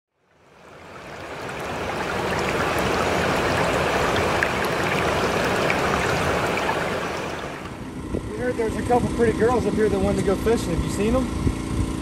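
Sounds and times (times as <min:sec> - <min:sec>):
water rushing: 0:00.2 - 0:07.9.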